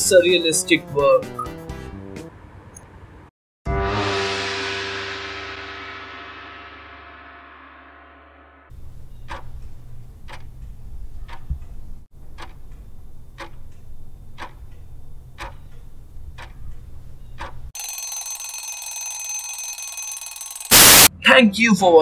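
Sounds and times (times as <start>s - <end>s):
countdown clock ticking: 9.2s - 11.5s, 12.2s - 16.6s
alarm bell ringing: 17.8s - 21.1s.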